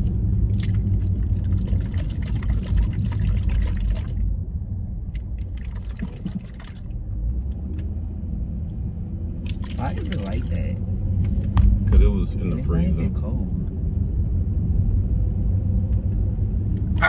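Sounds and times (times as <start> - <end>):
car low rumble: 0.0 - 17.0
oil sloshing in plastic bottle: 9.4 - 10.4.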